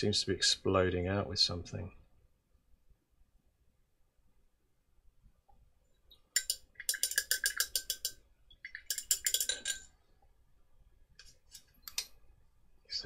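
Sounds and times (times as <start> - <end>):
small hard objects clinking: 6.4 - 9.9.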